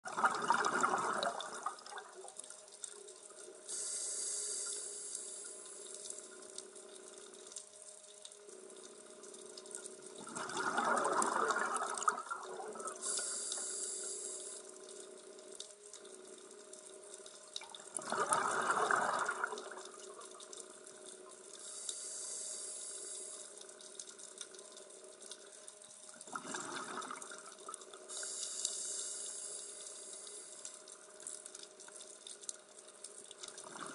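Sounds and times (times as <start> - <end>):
exhaled bubbles rushing: 0.1 - 2.3, 10.2 - 13.0, 17.6 - 20.3, 26.3 - 27.7, 33.6 - 33.9
regulator inhalation hiss: 3.7 - 6.0, 13.0 - 14.7, 21.6 - 23.6, 28.1 - 30.6.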